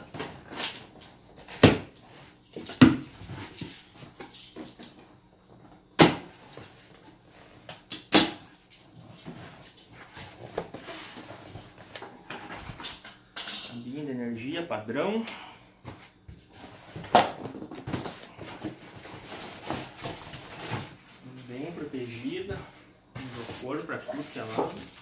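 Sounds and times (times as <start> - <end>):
cardboard rustling: 15.9 - 22.5, 23.2 - 25.0.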